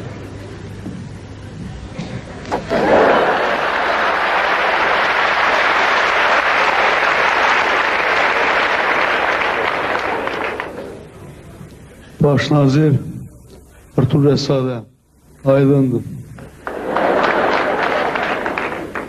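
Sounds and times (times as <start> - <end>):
audience applauding: 2.7 - 11.1, 16.6 - 19.0.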